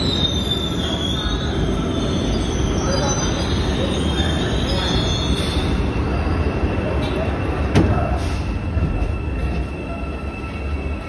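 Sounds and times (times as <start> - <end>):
train rumble: 0.0 - 11.0.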